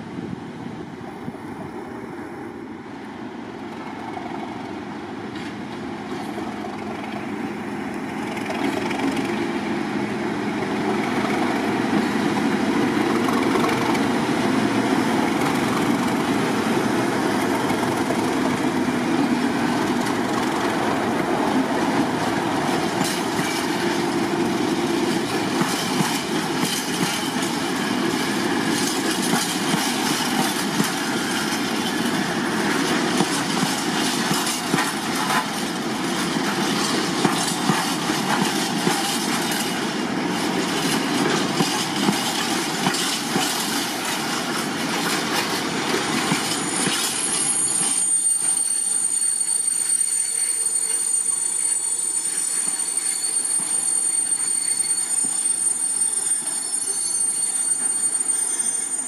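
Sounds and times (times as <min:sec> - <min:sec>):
diesel locomotives passing: 0:00.0 - 0:59.0
wheels clicking over rail joints: 0:21.8 - 0:48.7.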